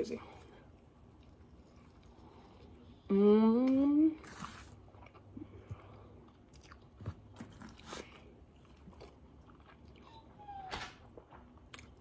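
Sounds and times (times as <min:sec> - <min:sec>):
chewing fried food: 0:00.4 - 0:03.0, 0:04.4 - 0:10.4, 0:11.0 - 0:12.0
puppy whining: 0:10.0 - 0:11.1.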